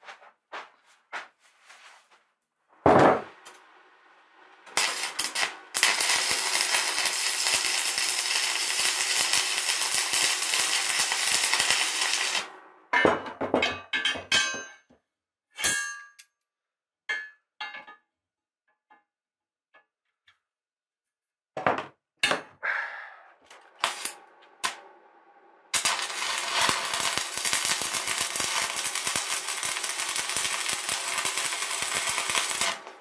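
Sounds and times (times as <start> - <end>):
arc welder crackling: 4.4 - 12.6, 23.6 - 24.9, 25.7 - 33.0.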